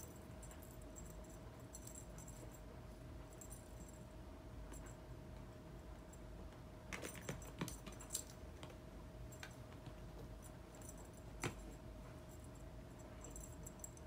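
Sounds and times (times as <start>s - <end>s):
faint steady hum: 0.0s - 14.0s
light taps and rattles: 6.5s - 8.8s.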